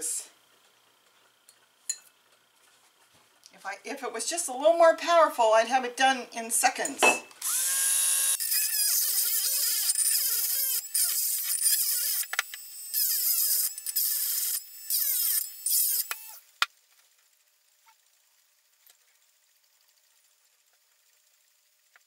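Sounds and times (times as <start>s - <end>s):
rotary tool grinding whine: 7.4s - 16.6s.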